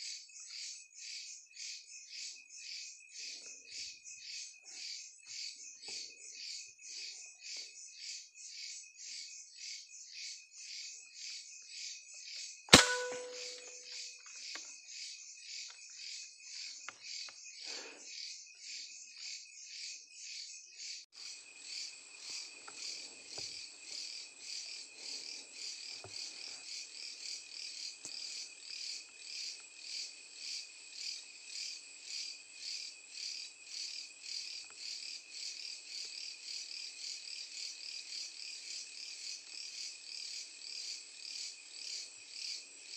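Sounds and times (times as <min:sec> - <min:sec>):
crickets chirping: 0:00.0 - 0:42.9
gunshot: 0:12.7 - 0:13.8.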